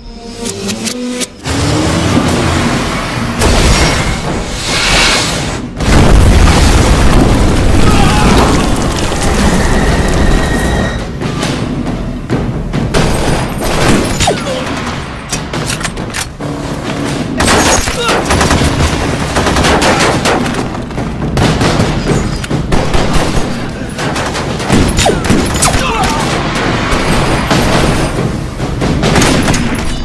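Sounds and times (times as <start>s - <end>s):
rifles firing in bursts: 17.4s - 29.8s.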